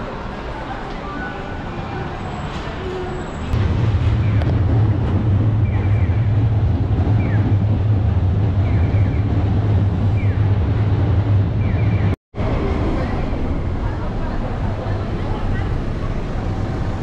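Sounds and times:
low street rumble: 0.0s - 17.0s
wind buffeting microphone: 3.5s - 17.0s.

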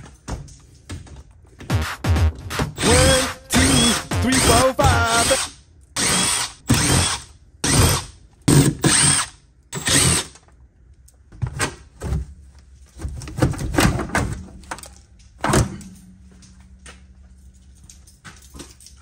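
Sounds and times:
power drill bursts: 2.6s - 10.4s.

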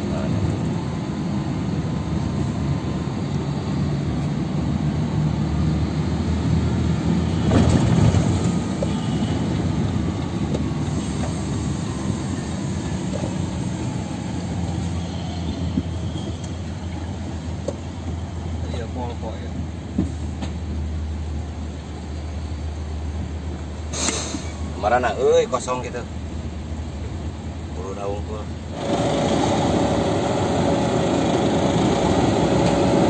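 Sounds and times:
road noise: 0.0s - 33.0s
truck diesel engine rumble: 0.0s - 33.0s.

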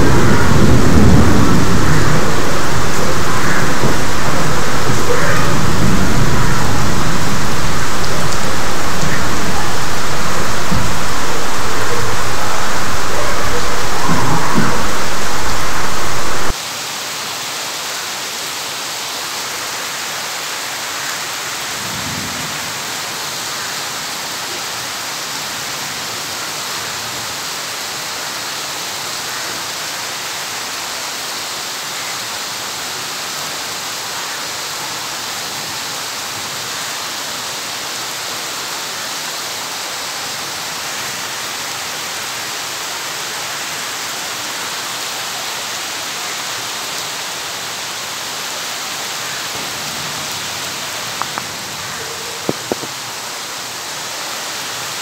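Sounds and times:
low rumble: 0.0s - 16.6s
steady rainfall: 0.0s - 55.0s.

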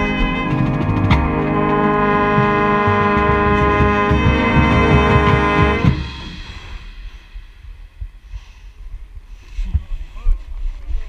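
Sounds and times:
baritone horn: 0.0s - 7.1s
brass band sustained chord: 0.0s - 7.4s
pounding drums: 0.0s - 8.1s.

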